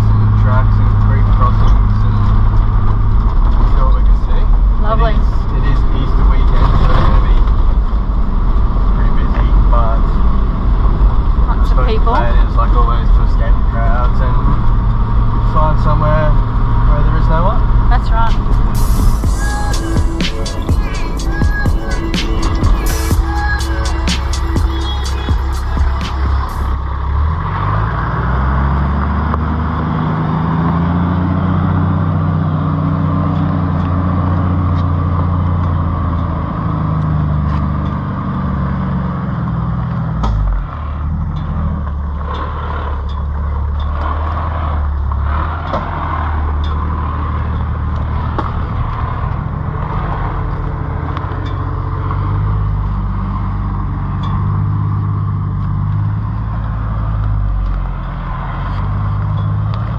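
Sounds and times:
engine running at low speed: 0.0s - 59.9s
small clicks under tyres: 39.3s - 59.9s.

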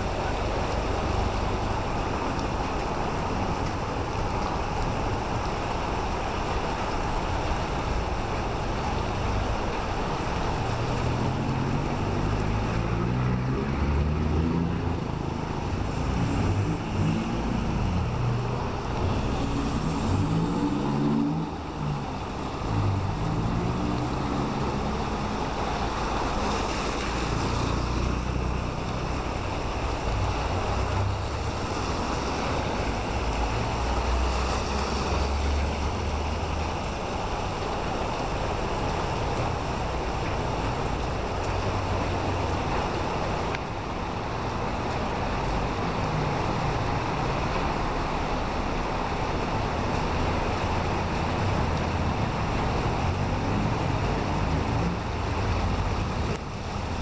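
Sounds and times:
cars driving on wet road: 0.0s - 57.0s
heavy rain falling: 0.0s - 57.0s
vehicle engine accelerating: 11.2s - 29.3s.

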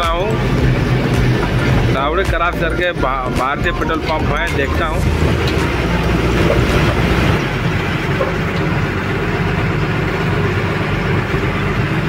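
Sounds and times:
truck diesel engine running: 0.0s - 12.0s.

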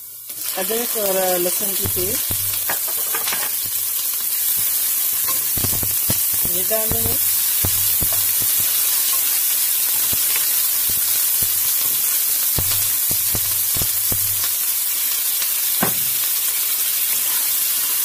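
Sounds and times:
onions sizzling in oil: 0.0s - 18.0s
spatula knocking and scraping pan: 1.8s - 3.8s, 5.3s - 9.2s, 12.6s - 14.6s.

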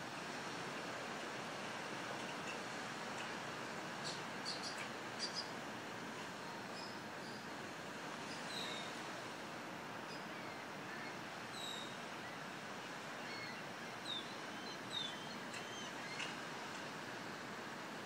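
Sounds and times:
outdoor background hiss: 0.0s - 18.0s
birds chirping: 4.0s - 5.6s, 13.2s - 16.4s.

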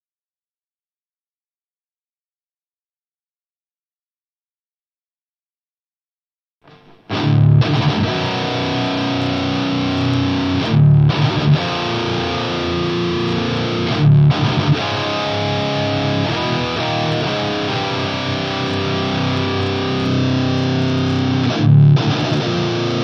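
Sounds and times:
distorted electric guitar: 6.6s - 23.0s.

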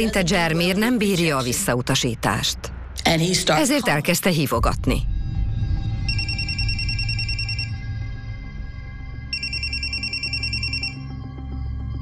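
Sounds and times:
low background music: 0.0s - 12.0s
mobile phone ringing: 6.1s - 7.8s, 9.3s - 11.1s.

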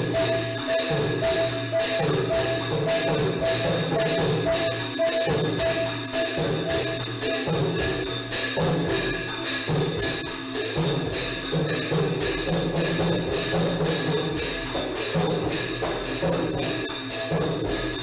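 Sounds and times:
hand cymbals: 0.0s - 18.0s
long drum beats: 0.0s - 18.0s.

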